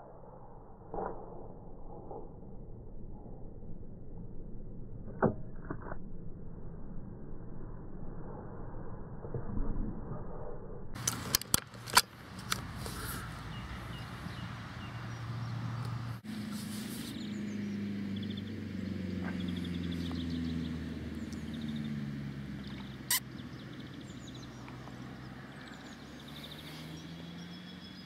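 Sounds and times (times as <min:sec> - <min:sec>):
low wavering drone: 0:00.0 - 0:11.0
birds chirping and whistling: 0:12.8 - 0:28.0.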